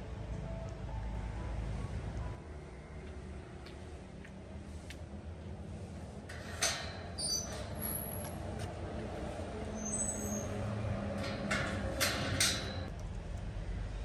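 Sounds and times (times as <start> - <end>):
vehicle engine rumble: 0.0 - 14.0
metal gate clanking: 6.3 - 8.6, 9.6 - 12.9.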